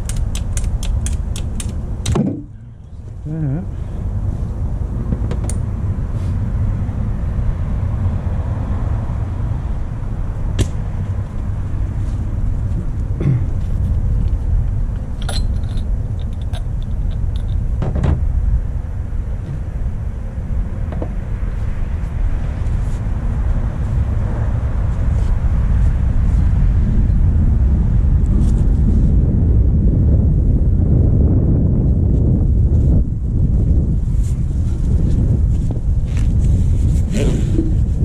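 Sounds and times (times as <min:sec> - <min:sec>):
hand tools clicking and clinking: 0:00.0 - 0:01.8, 0:15.2 - 0:17.6
wind buffeting microphone: 0:00.0 - 0:38.0.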